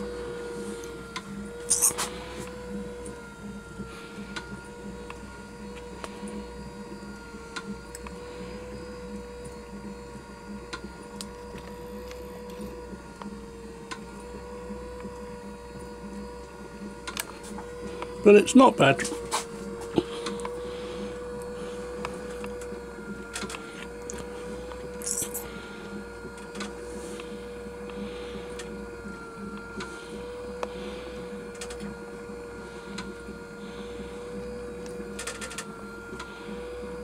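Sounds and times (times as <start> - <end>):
model steam engine running: 14.1 - 37.0
mechanical clatter and clicks: 31.5 - 31.9, 34.8 - 35.7.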